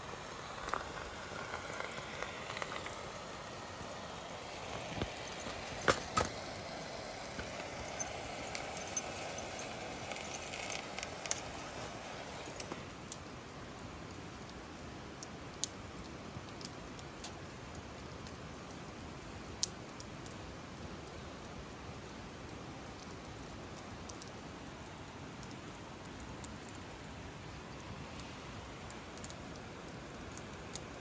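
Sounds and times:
rushing river water: 0:00.0 - 0:13.0
campfire crackling: 0:00.0 - 0:31.0.

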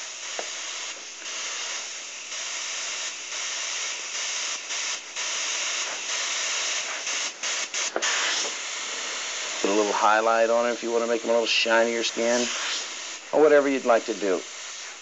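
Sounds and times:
airbrush spraying hiss: 0:00.0 - 0:15.0.

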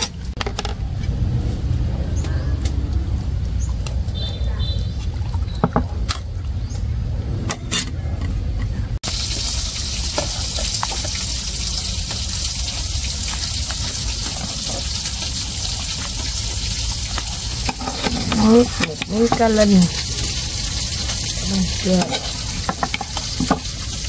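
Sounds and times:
soup pouring and splashing: 0:09.0 - 0:24.0.

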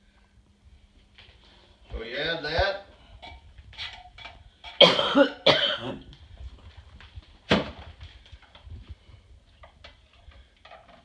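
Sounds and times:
man coughing: 0:04.8 - 0:06.1.

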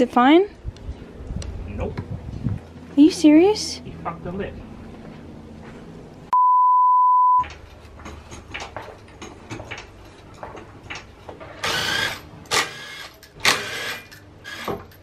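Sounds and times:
test-tone beep: 0:06.4 - 0:07.4.

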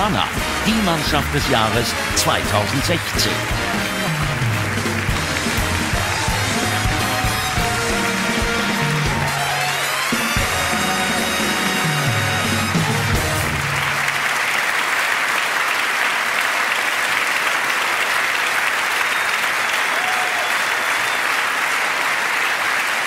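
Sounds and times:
music: 0:00.0 - 0:14.4
audience applauding: 0:00.0 - 0:23.0.

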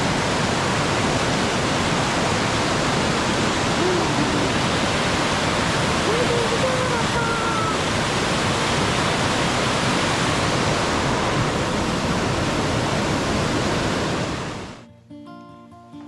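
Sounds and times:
creek water rushing over boulders: 0:00.0 - 0:14.8.

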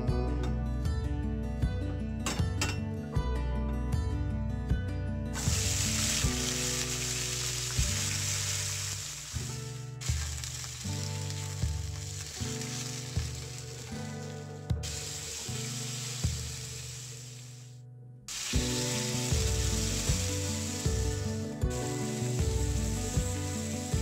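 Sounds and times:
background music with soft beat: 0:00.0 - 0:17.5, 0:18.3 - 0:24.0
beans sizzling in hot oil: 0:05.4 - 0:24.0.

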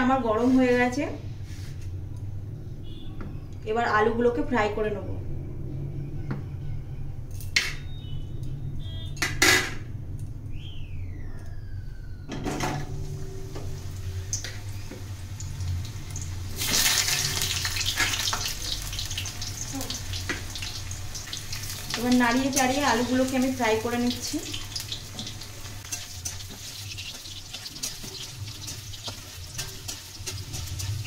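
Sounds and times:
low steady hum: 0:00.0 - 0:31.0
potatoes sizzling in hot oil: 0:13.7 - 0:31.0.

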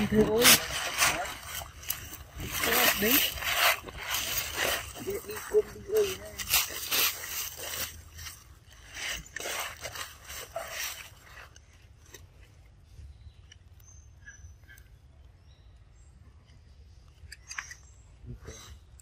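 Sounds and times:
dry leaves crunching: 0:00.0 - 0:12.4
outdoor background: 0:00.0 - 0:19.0.

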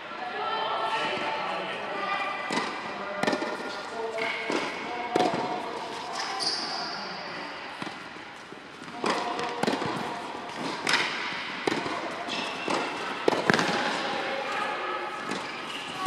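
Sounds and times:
tennis ball hit by racket: 0:02.5 - 0:05.6, 0:08.8 - 0:14.0
tennis ball bouncing on hard court: 0:02.5 - 0:06.0, 0:08.8 - 0:14.0, 0:15.2 - 0:16.0
high shoe squeak: 0:06.0 - 0:07.1, 0:12.3 - 0:13.0, 0:15.4 - 0:16.0.

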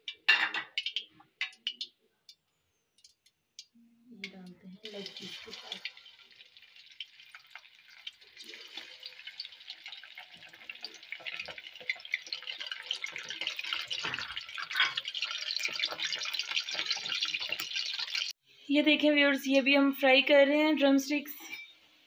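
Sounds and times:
hot oil sizzling and crackling: 0:00.0 - 0:01.9, 0:03.0 - 0:18.4.

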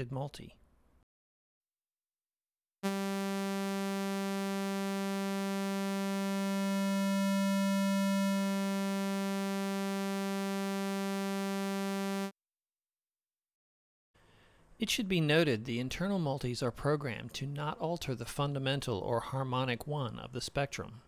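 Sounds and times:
held synthesizer note: 0:02.8 - 0:12.3.

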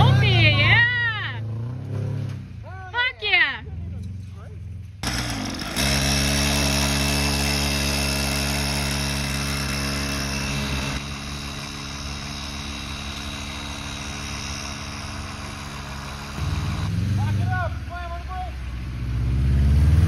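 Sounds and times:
mini bike engine running: 0:05.0 - 0:17.6.

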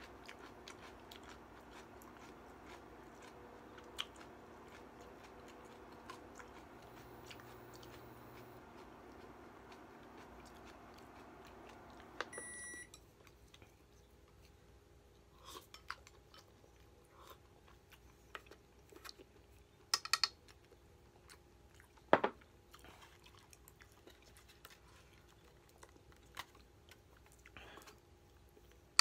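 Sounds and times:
quiet chewing: 0:00.0 - 0:29.0
chopsticks clicking on pot and bowl: 0:19.9 - 0:20.4.

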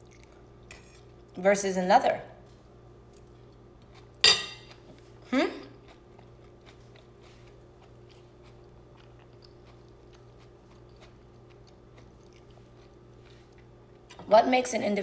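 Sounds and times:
chewing with mouth closed: 0:00.0 - 0:01.3, 0:05.7 - 0:14.2
low steady hum: 0:00.0 - 0:15.0.

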